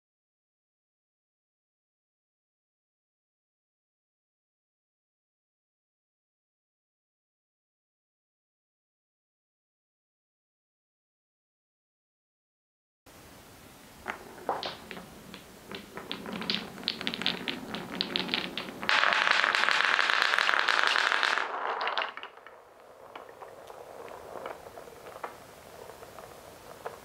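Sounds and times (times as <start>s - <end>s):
balls knocking in wooden bowl: 14.0s - 27.0s
wooden balls rolling and clacking: 14.0s - 27.0s.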